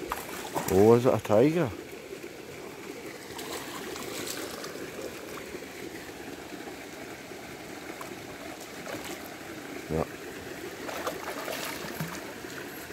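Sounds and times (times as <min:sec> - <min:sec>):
soft water noise: 0:00.0 - 0:12.9
fish splashing at surface: 0:10.8 - 0:12.3.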